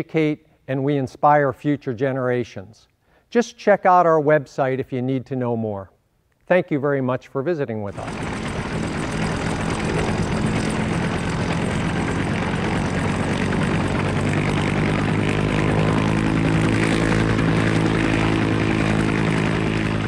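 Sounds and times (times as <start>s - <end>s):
helicopter engine and rotor: 7.9s - 20.0s.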